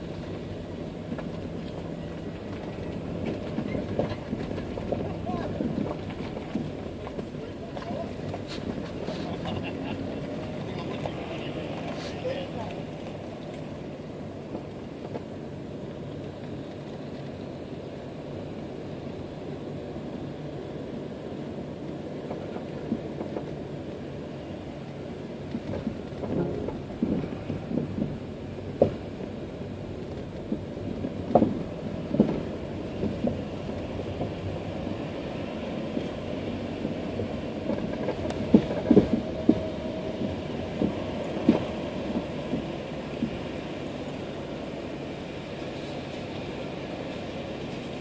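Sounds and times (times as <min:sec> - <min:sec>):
car cabin hum: 0:21.8 - 0:46.0
knocks and thumps: 0:30.5 - 0:33.4.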